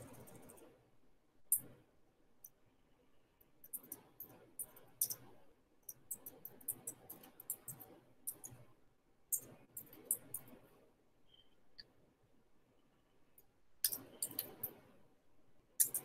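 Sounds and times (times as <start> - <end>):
keyboard and mouse clicking: 3.6 - 5.3, 13.8 - 14.8, 15.8 - 16.0.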